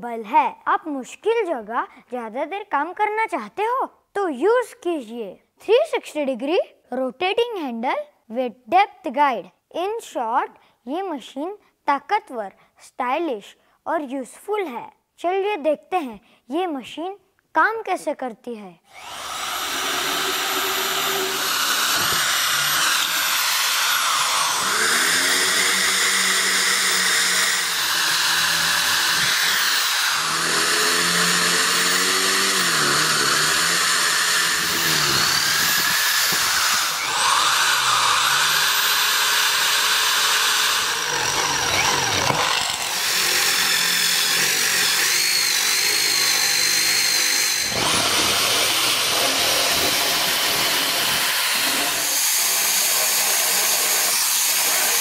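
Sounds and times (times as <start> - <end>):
electric drill boring into wood: 18.9 - 55.0.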